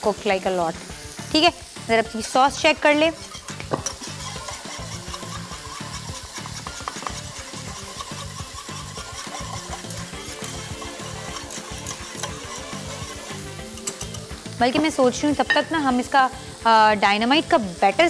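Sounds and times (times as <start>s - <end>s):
whisk scraping metal saucepan: 2.2s - 14.8s.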